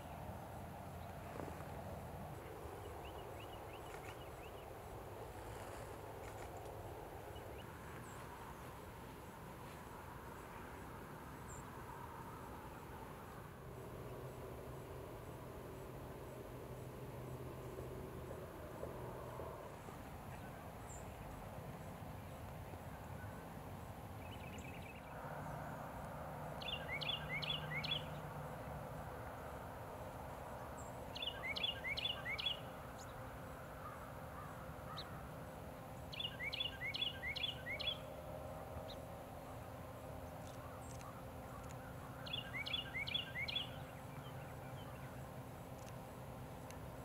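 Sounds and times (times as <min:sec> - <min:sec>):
steady low hum: 0:00.0 - 0:47.0
small bird singing: 0:26.6 - 0:28.2, 0:30.7 - 0:33.2, 0:36.0 - 0:38.2, 0:40.2 - 0:46.0.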